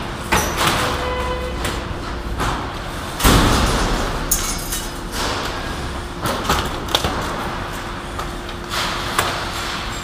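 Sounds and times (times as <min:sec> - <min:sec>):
metal parts scraping and clattering: 0:03.6 - 0:07.4.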